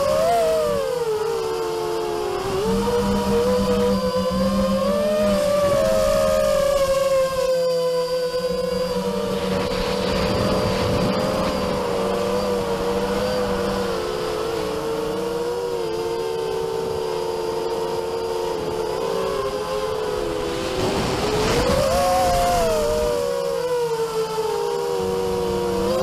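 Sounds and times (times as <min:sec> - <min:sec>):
drone motors whining: 0:00.0 - 0:26.0
wind rumble: 0:08.3 - 0:23.4.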